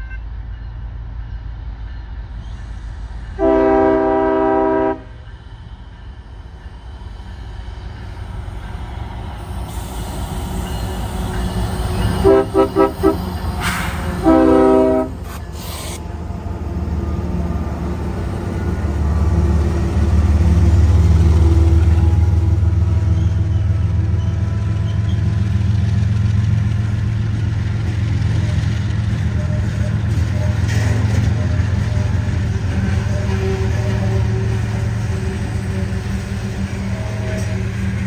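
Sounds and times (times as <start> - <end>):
locomotive engines and wheels rumbling: 0.0 - 38.0
locomotive air horn blasts: 3.4 - 5.2, 12.2 - 13.4, 14.2 - 15.9, 29.4 - 37.8.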